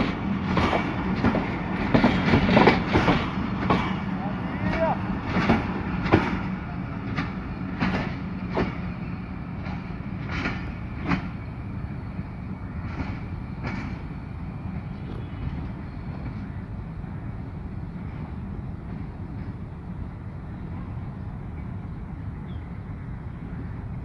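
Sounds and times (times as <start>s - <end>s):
train wheels clacking over rail joints: 0.0s - 11.5s, 12.7s - 14.2s.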